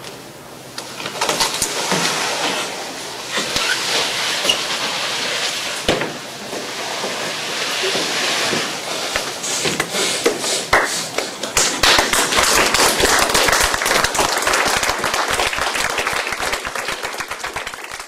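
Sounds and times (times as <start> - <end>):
audience applauding: 10.7 - 18.0.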